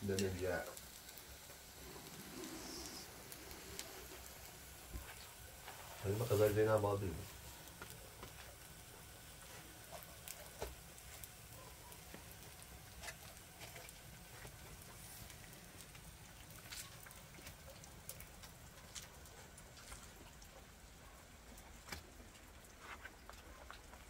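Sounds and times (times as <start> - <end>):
rain patter: 0.0 - 24.0
water drips ticking: 15.3 - 24.0.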